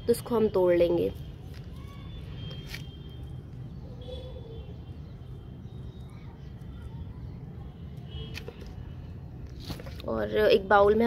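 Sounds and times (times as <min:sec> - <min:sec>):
faint high chirps: 0:01.2 - 0:08.3.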